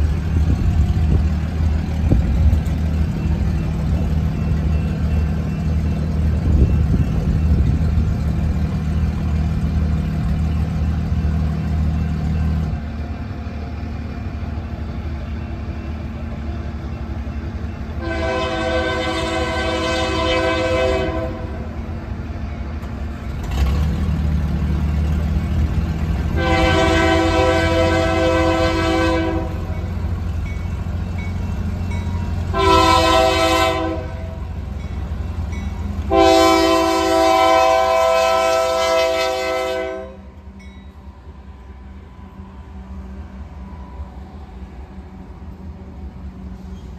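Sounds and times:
diesel engine rumble: 0:00.0 - 0:38.1
locomotive air horn blasts: 0:18.0 - 0:21.7, 0:26.4 - 0:29.7, 0:32.5 - 0:34.5, 0:36.1 - 0:40.3.

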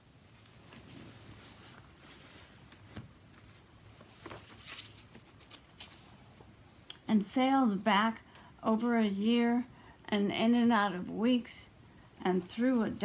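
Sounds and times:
book rustling: 0:00.5 - 0:06.5.

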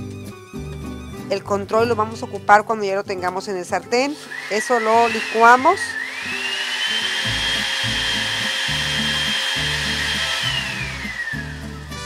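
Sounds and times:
blender motor whine: 0:04.1 - 0:12.0.

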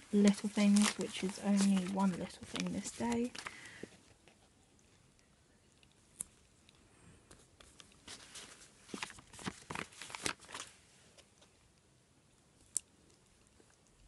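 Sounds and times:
paper sticker rustling: 0:00.0 - 0:03.9, 0:07.3 - 0:10.8.

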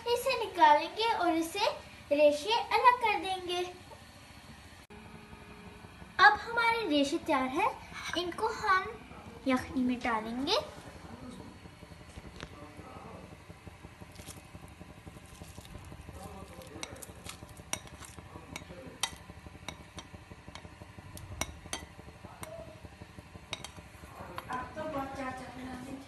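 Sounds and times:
faint low rumble: 0:04.5 - 0:26.0.

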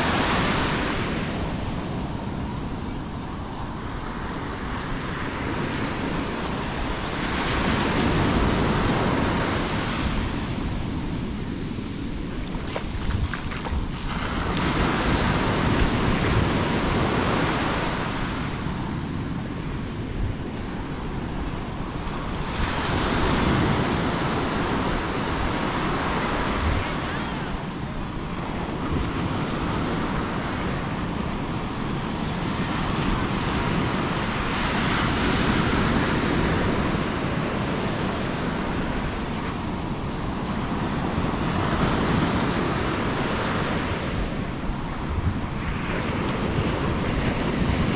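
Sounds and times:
surf breaking on sand: 0:00.0 - 0:02.8, 0:03.5 - 0:47.9.

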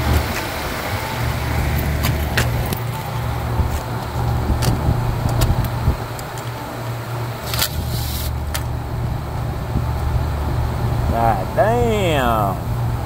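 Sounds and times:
condensing unit humming: 0:00.0 - 0:13.0.

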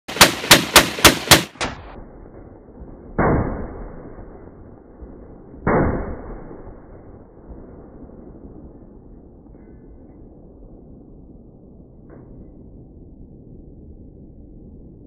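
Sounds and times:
dull bangs with long tails: 0:00.1 - 0:01.9
machine gun shots: 0:00.1 - 0:02.0.

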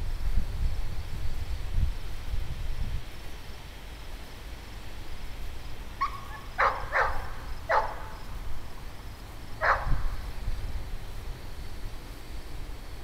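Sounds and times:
wind rumble on microphone: 0:00.0 - 0:13.0
dog barking: 0:06.0 - 0:08.2, 0:09.6 - 0:10.1.

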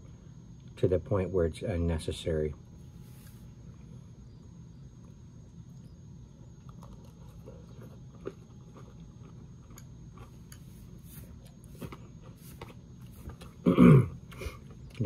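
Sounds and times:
person chewing crunchy cereal: 0:05.7 - 0:15.0.

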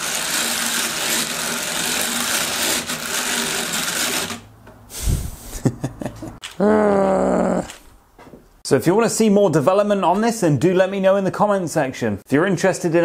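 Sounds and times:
knitting machine clatter: 0:00.0 - 0:04.5.

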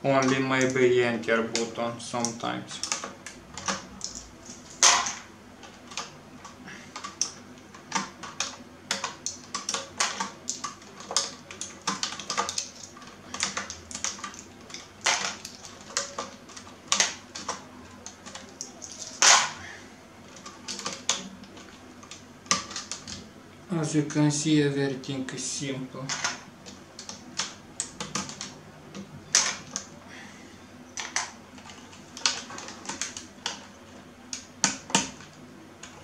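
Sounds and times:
plastic keycaps clicking and snapping: 0:01.6 - 0:19.6.

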